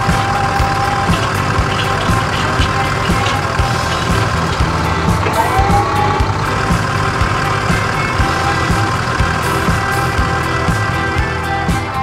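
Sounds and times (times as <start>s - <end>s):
short rising tone: 0.0s - 9.6s
background music with beat: 0.0s - 12.0s
tractor engine running: 0.0s - 12.0s.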